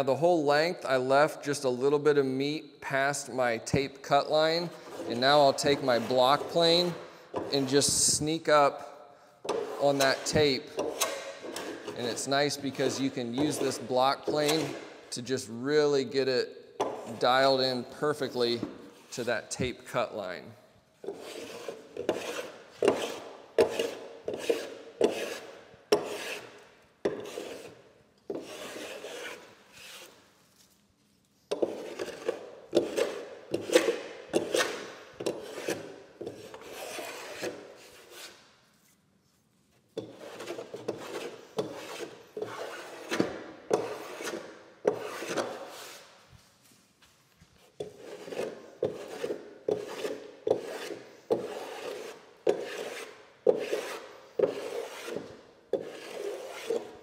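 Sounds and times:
hand plane shaving wood: 21.0 - 30.2, 31.6 - 38.4, 40.0 - 46.0, 47.8 - 57.0.

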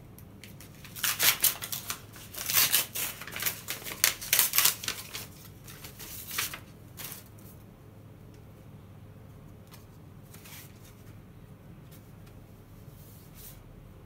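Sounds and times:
paper rustling: 0.4 - 7.6, 9.7 - 11.2
paper envelope tearing: 0.5 - 7.3.

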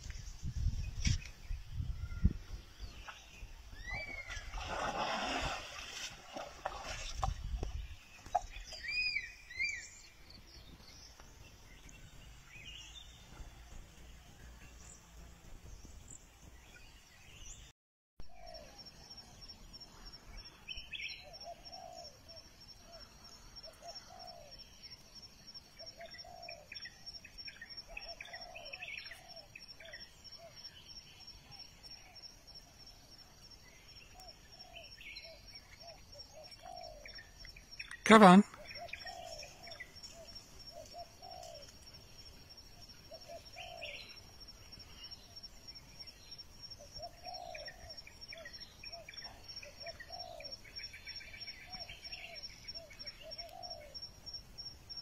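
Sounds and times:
muddy water sloshing: 4.0 - 8.6
birds chirping and calling: 25.8 - 30.7, 34.1 - 38.0, 38.6 - 41.9, 42.9 - 44.2, 46.8 - 54.0.

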